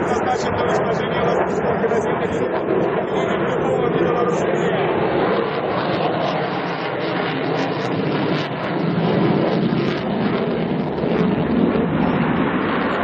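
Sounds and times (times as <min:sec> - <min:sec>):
fighter jet engines roaring: 0:00.0 - 0:13.0.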